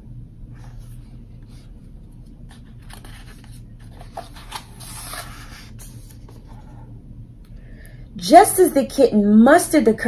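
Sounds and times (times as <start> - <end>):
low steady hum: 0.0 - 10.0
book pages rustling: 0.5 - 6.8.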